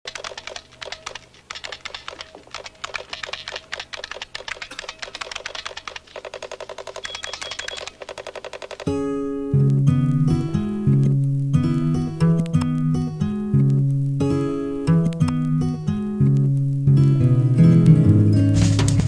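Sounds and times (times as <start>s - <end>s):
rapid keyboard typing: 0.1s - 9.0s.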